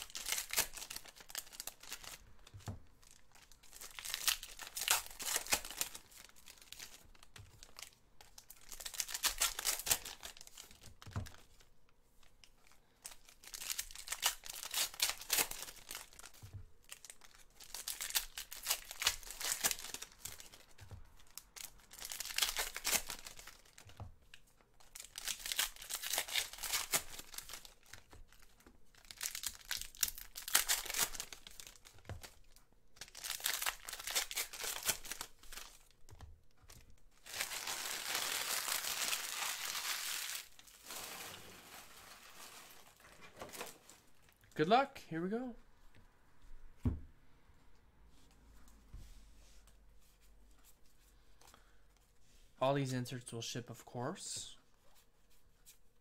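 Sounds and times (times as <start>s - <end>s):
foil wrappers tearing and crinkling: 0.0s - 2.2s, 3.1s - 11.5s, 13.0s - 23.9s, 24.9s - 32.4s, 33.0s - 36.0s, 37.2s - 44.0s.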